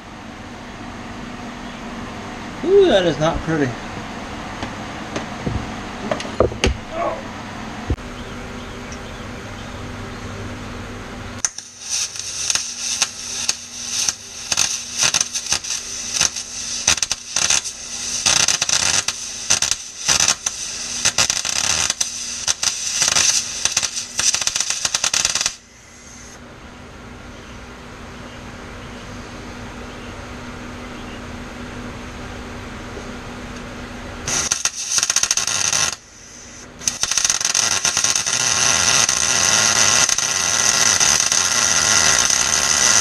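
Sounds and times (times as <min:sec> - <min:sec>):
steady hum: 0:00.0 - 0:43.0
welding arc crackling: 0:11.4 - 0:26.4, 0:34.2 - 0:43.0.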